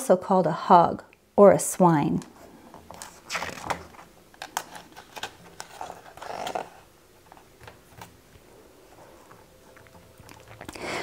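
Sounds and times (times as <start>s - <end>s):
paper page rustling: 2.8s - 9.5s.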